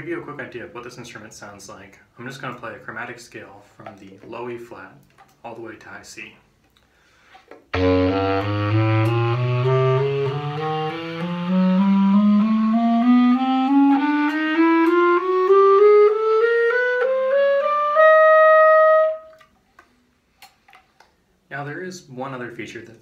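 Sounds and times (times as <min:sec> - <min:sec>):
alto clarinet playing a chromatic scale: 0:07.7 - 0:19.4.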